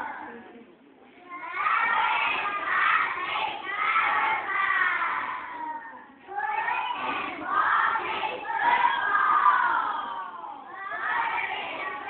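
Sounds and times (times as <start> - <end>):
children chanting together: 1.3 - 12.0.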